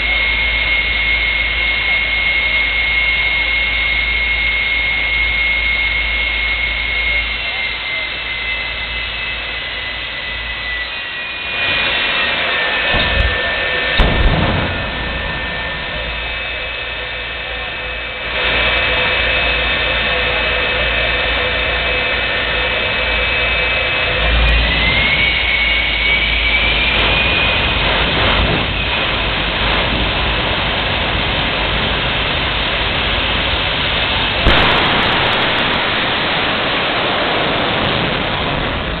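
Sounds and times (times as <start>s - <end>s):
jet engine turbine whine: 0.0s - 39.0s
sharp bangs: 12.3s - 17.3s, 34.4s - 39.0s.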